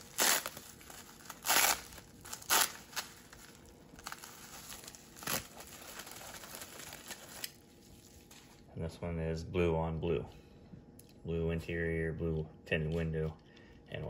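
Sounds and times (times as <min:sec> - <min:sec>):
packing peanuts and bubble wrap rustling: 0:00.0 - 0:08.7.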